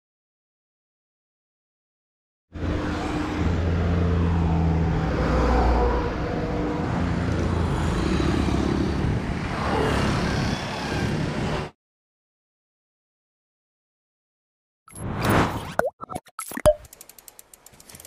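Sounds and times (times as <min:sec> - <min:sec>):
road traffic hum: 0:02.5 - 0:11.8
vehicle passing by: 0:02.6 - 0:11.7.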